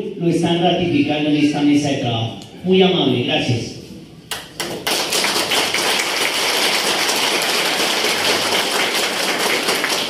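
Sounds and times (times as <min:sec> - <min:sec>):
audience applauding: 0:04.3 - 0:10.0.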